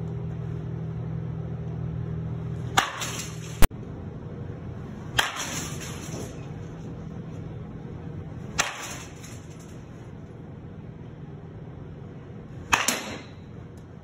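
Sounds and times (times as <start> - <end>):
baseball bat whacks: 12.7 - 13.4.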